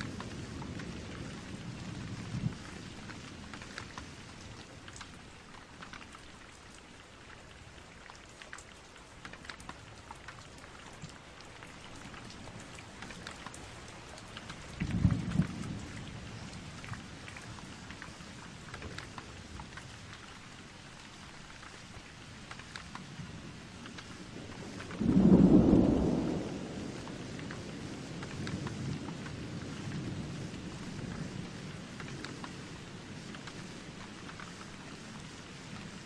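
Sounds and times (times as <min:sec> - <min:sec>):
thunder rumble: 0:00.0 - 0:04.5, 0:12.4 - 0:19.8, 0:23.1 - 0:34.6
rain falling into puddles: 0:00.0 - 0:36.0
raindrops splashing: 0:00.0 - 0:36.0.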